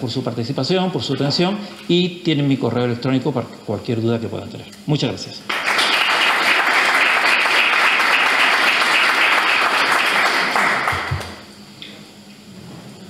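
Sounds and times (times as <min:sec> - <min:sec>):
small audience applauding: 0:05.5 - 0:11.5.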